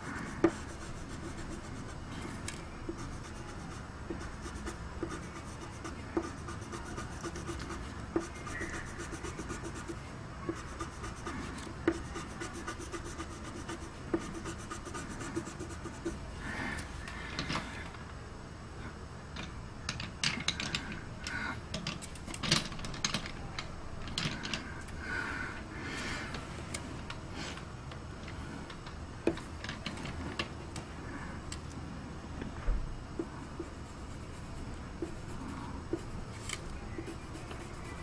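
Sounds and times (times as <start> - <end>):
pencil scratching on paper: 0.0 - 16.2, 33.2 - 36.2, 36.9 - 38.0.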